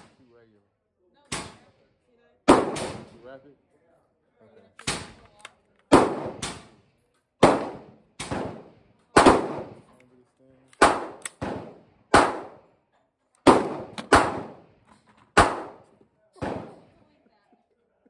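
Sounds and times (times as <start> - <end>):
loud gunshots: 2.5 - 3.2, 5.9 - 6.8, 7.4 - 9.8, 10.8 - 12.7, 13.4 - 14.7, 15.4 - 17.0
ringing echo of gunshots: 2.5 - 3.2, 5.9 - 6.7, 7.4 - 9.9, 10.8 - 12.7, 13.4 - 14.7, 15.4 - 17.0.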